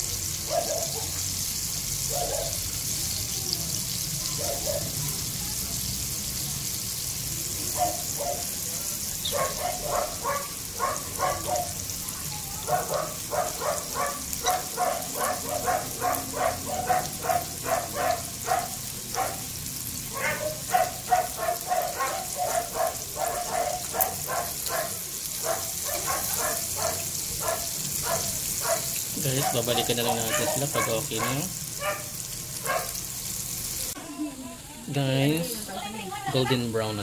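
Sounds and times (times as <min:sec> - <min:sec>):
chicken deep-frying sizzle: 0:00.0 - 0:37.0
dog barking rapidly: 0:00.5 - 0:01.2, 0:02.1 - 0:02.6, 0:04.4 - 0:05.0, 0:07.8 - 0:08.5, 0:09.2 - 0:11.8, 0:12.6 - 0:19.5, 0:20.1 - 0:33.0.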